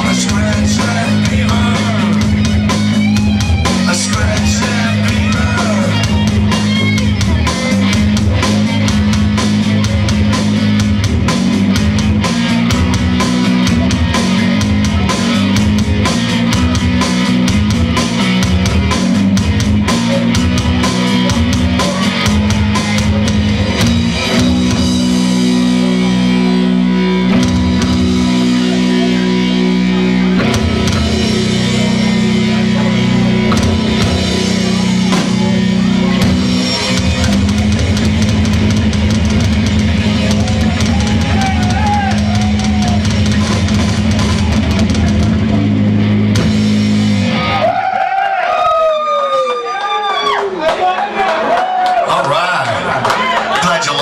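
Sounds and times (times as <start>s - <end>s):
drum kit: 0.0s - 48.4s
electric guitars: 0.0s - 50.5s.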